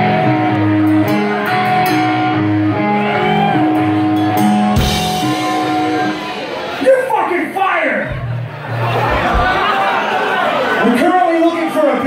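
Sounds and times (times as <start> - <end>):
bass guitar: 0.0 - 6.8, 8.0 - 9.8
distorted electric guitar riff: 0.0 - 6.8.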